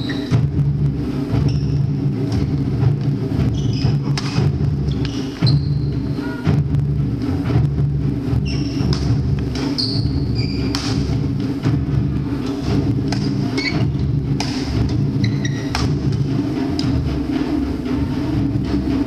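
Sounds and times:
shoes squeaking on floor: 0.0 - 0.4, 1.4 - 2.0, 3.4 - 6.5, 8.4 - 11.2, 12.5 - 16.2
racket hitting shuttlecock: 4.1 - 4.4, 8.8 - 9.8, 10.6 - 11.1, 13.1 - 13.8, 14.4 - 15.0, 15.7 - 16.2.

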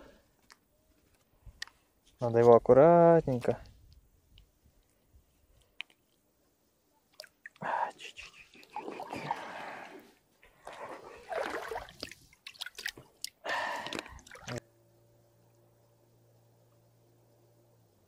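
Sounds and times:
faint steady hum: 0.0 - 18.0
water splashing in shallows: 10.6 - 14.6.

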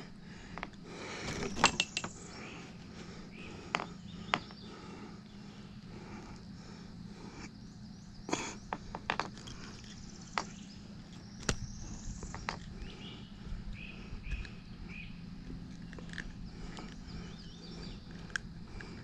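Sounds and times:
faint steady hum: 0.0 - 19.0
bird chirps: 1.4 - 5.8, 9.8 - 18.3.

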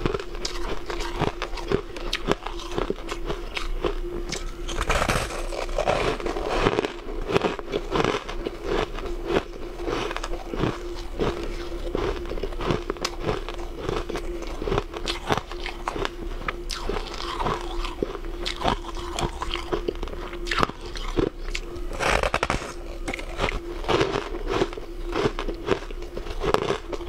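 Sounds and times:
crunching and chewing ice: 0.0 - 27.0
faint steady hum: 0.0 - 27.0.

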